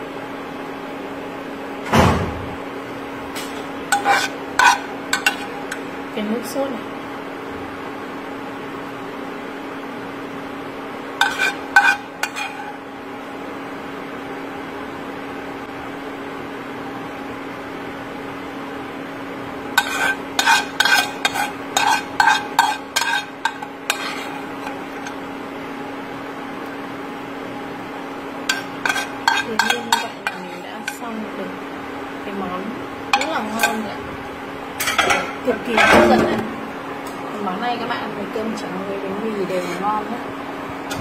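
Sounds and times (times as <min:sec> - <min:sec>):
steady low hum: 0:00.0 - 0:41.0
metal spoon clinking on pan: 0:03.9 - 0:05.9, 0:11.2 - 0:12.7, 0:19.8 - 0:25.2, 0:28.5 - 0:31.0, 0:33.1 - 0:33.8.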